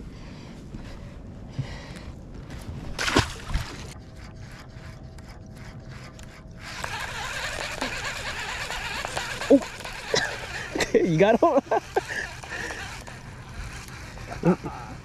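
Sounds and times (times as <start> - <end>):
water sloshing and splashing: 2.6 - 4.2.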